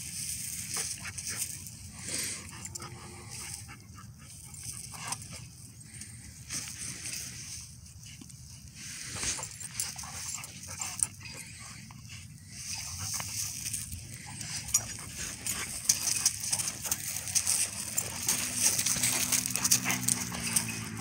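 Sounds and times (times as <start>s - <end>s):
paws scuffling on gravel: 0.0s - 21.0s
dog play growl: 14.2s - 21.0s.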